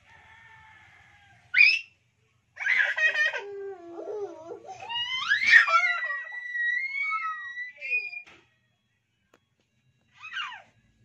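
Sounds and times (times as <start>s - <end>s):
child squealing: 3.9s - 8.2s, 10.2s - 10.7s.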